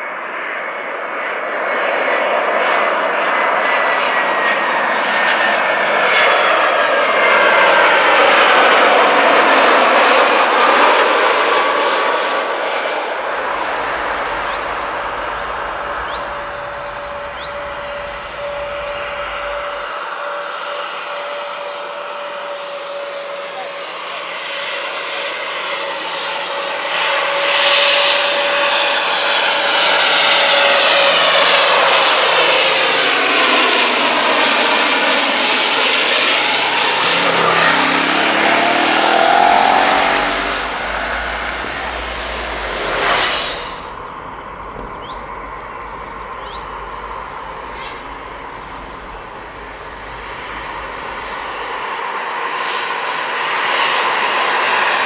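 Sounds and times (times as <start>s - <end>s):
jet airliner on approach: 0.0s - 55.0s
turboprop airliner passing overhead: 0.0s - 55.0s
birds chirping: 13.1s - 19.9s, 36.5s - 51.8s.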